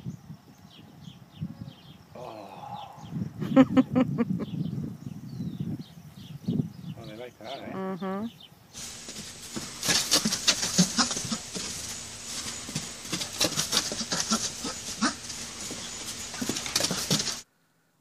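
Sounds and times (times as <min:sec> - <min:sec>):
donkey foal grunting: 0:08.8 - 0:17.4
small hooves scuffing in straw: 0:08.8 - 0:17.4.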